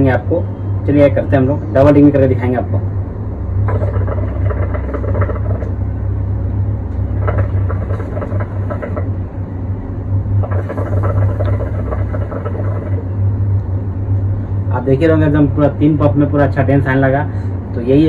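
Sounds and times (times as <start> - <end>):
low hum: 0.0 - 18.0
hookah water bubbling: 3.6 - 6.3, 7.0 - 9.3, 10.2 - 13.4.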